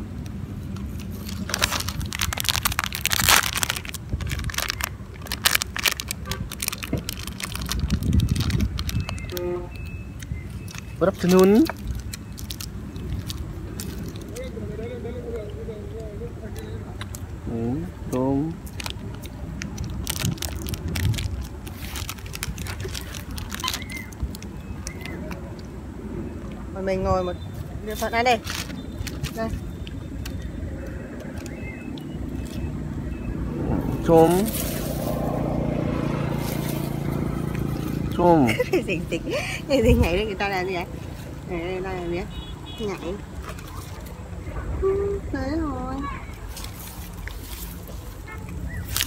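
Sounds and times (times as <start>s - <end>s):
plastic snack packet crinkling: 0.8s - 9.4s, 10.7s - 14.5s, 18.6s - 25.2s.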